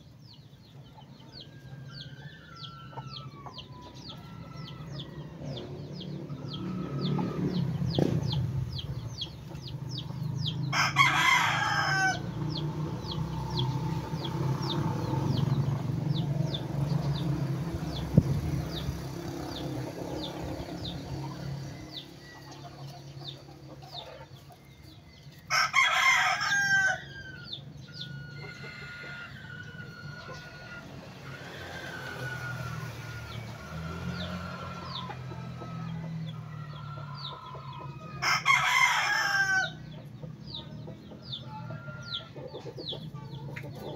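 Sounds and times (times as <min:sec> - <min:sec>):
rooster crowing: 0:01.4 - 0:05.8, 0:10.7 - 0:12.4, 0:25.5 - 0:39.9.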